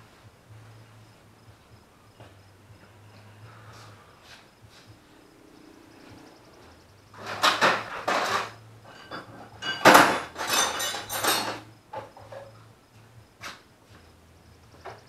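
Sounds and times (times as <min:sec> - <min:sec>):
metal hand tools clattering: 0:07.2 - 0:12.5.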